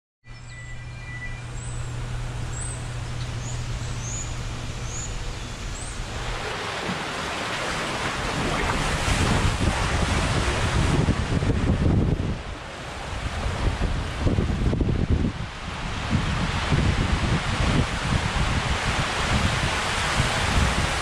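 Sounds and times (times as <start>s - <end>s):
steady low hum: 0.2s - 19.2s
short high chirps: 0.3s - 2.8s
rushing water: 2.0s - 21.0s
raft sliding through water slide tube: 5.6s - 14.4s.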